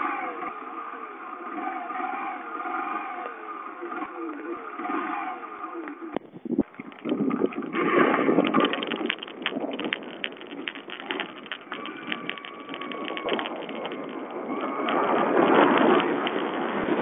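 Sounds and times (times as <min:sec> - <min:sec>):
motorcycle engine: 0:00.0 - 0:17.0
sharp clicks and rattles: 0:01.4 - 0:17.0
wind noise: 0:06.1 - 0:17.0.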